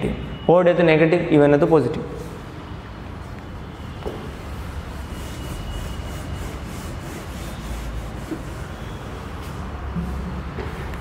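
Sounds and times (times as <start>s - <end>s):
duster wiping whiteboard: 4.4s - 10.4s.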